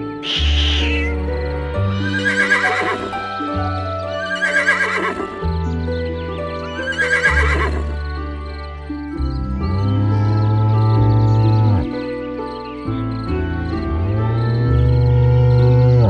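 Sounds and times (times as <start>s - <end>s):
slow held chords music: 0.0s - 4.3s, 7.5s - 16.0s
wavering animal calls: 0.2s - 1.2s.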